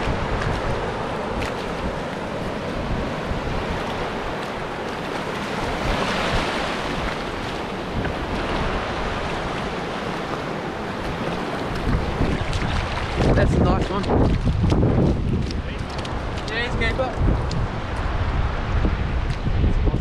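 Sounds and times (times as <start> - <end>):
surf washing on beach: 0.0 - 20.0
wind buffeting microphone: 0.0 - 20.0.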